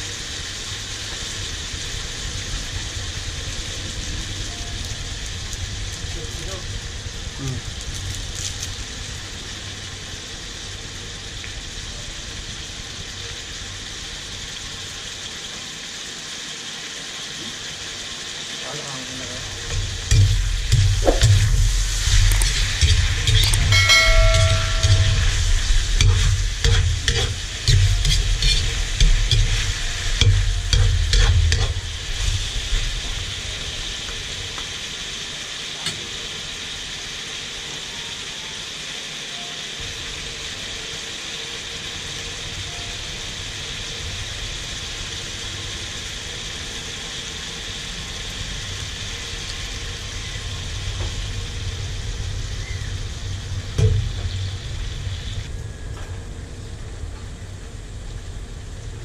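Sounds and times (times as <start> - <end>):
chicken sizzling in a wok: 0.0 - 59.0
metal spatula scraping a pan: 21.9 - 31.8.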